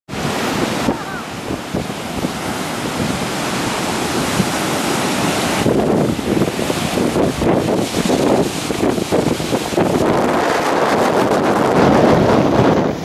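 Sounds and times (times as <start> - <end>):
storm surf breaking: 0.1 - 13.0
wind buffeting microphone: 0.1 - 13.0.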